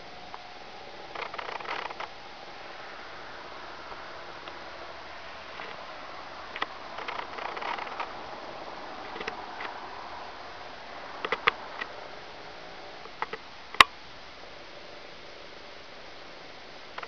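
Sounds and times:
steady faint hiss: 0:00.0 - 0:17.0
small clicks and crackles: 0:00.3 - 0:10.2, 0:11.2 - 0:12.1, 0:12.9 - 0:14.0.

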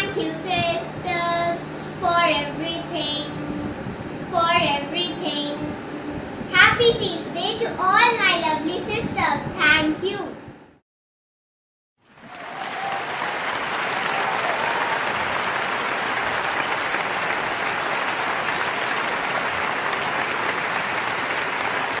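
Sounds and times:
applause: 0:12.0 - 0:22.0.

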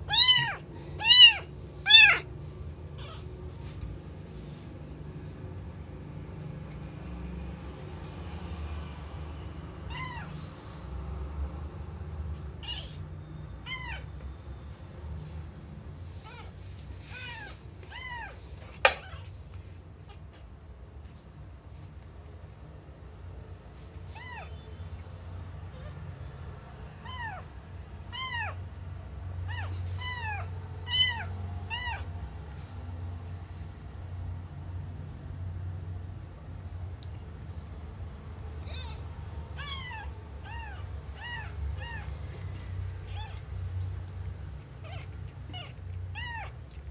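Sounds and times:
kitten meowing: 0:00.0 - 0:02.3, 0:03.0 - 0:03.3, 0:09.9 - 0:10.4, 0:12.6 - 0:13.0, 0:13.6 - 0:14.1, 0:17.1 - 0:19.3, 0:24.1 - 0:24.8, 0:27.0 - 0:27.5, 0:28.1 - 0:28.6, 0:29.5 - 0:32.1, 0:38.6 - 0:43.5, 0:44.7 - 0:46.8.

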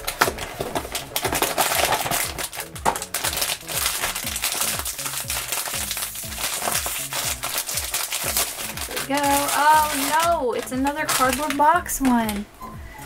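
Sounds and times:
foil bag crinkling: 0:00.0 - 0:12.5
background music with bass beat: 0:00.1 - 0:09.3.

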